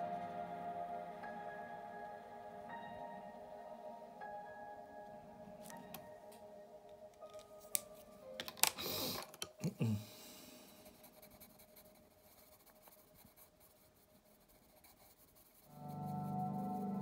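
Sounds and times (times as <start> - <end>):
ambient music with singing bowl: 0.0 - 8.4, 15.7 - 17.0
faint background music: 0.0 - 14.9, 15.6 - 17.0.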